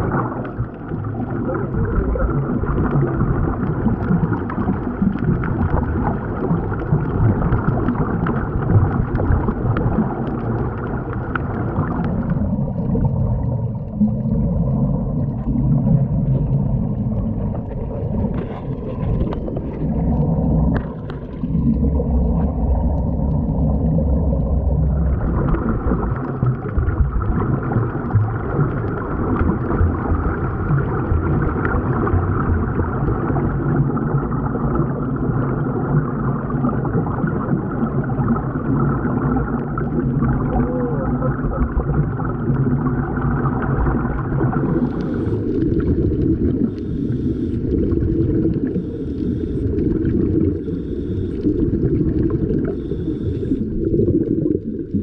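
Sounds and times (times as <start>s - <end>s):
underwater bubbling: 0.0s - 55.0s.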